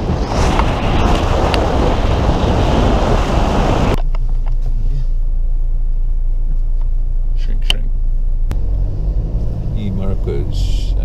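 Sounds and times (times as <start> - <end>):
wind rushing over microphone: 0.0 - 4.0
car road noise: 0.0 - 11.0
low car cabin rumble: 1.6 - 11.0.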